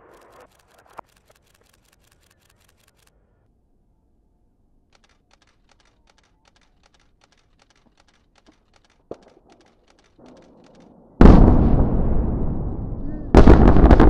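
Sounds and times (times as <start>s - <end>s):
demolition explosion boom: 10.2s - 14.0s.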